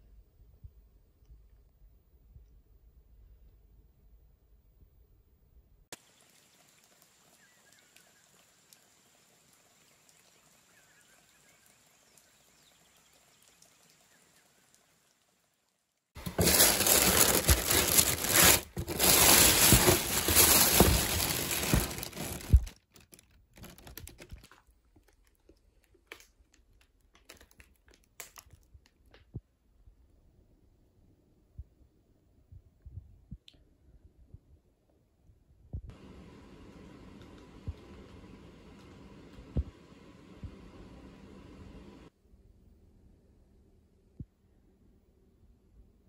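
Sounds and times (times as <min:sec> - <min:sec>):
crinkling of mesh pads: 0:16.2 - 0:29.3.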